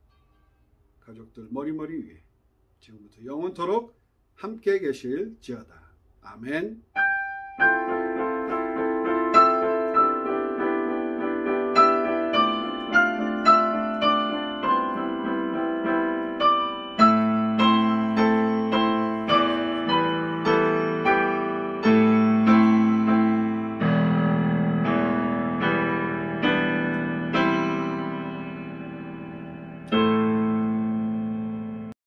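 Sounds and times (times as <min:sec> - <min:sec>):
slow solo piano music: 0:07.0 - 0:32.0.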